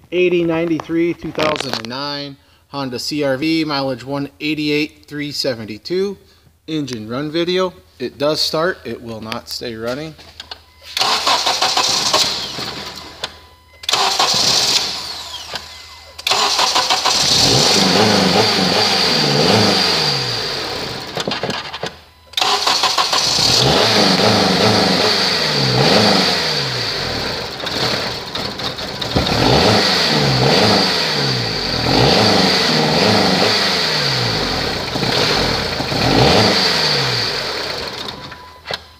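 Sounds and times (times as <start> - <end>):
car engine running unevenly: 23.1 - 38.5.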